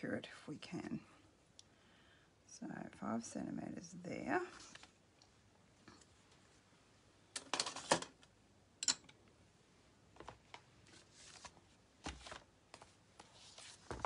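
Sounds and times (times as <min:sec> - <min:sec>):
paper rustling: 0:10.2 - 0:14.0.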